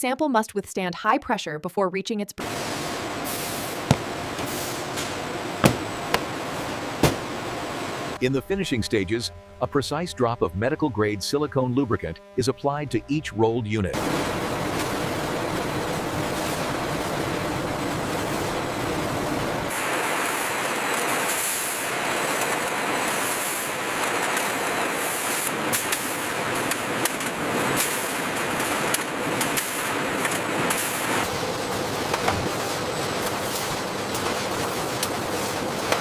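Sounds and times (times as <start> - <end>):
machinery din: 3.8 - 7.6
hissing bursts: 19.7 - 31.4.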